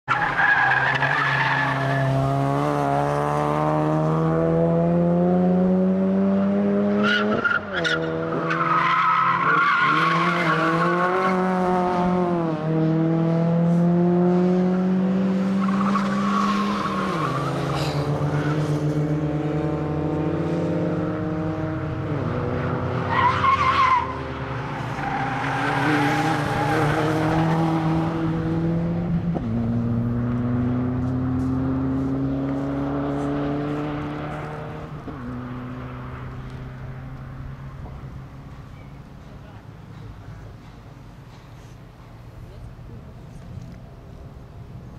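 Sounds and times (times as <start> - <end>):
car engine revving hard: 1.7 - 7.4.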